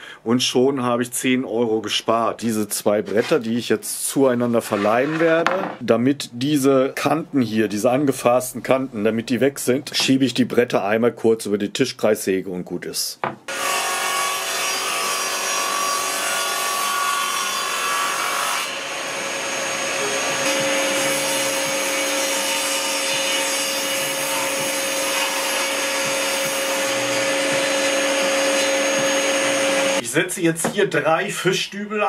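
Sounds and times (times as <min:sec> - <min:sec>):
table saw cutting board: 0:04.4 - 0:05.8, 0:13.5 - 0:30.0.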